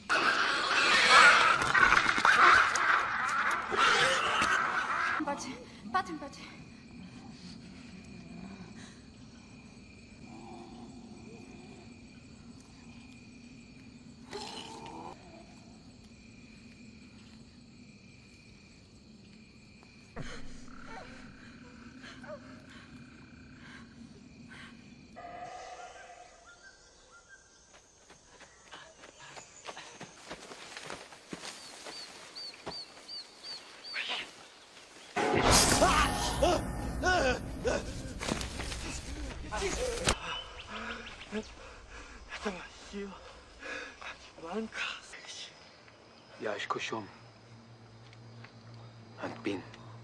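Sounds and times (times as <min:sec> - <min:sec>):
night insects trilling: 0:00.0 - 0:50.0
steps through undergrowth: 0:29.7 - 0:35.8, 0:37.9 - 0:40.2.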